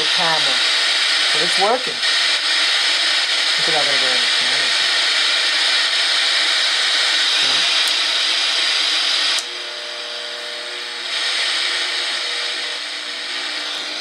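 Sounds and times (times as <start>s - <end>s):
tv static hiss: 0.0s - 8.1s.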